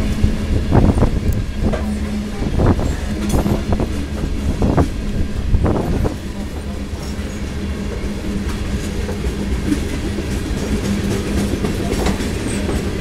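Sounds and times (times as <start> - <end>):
train wheels rumbling on rails: 0.0 - 13.0
wheels clicking over rail joints: 0.0 - 13.0.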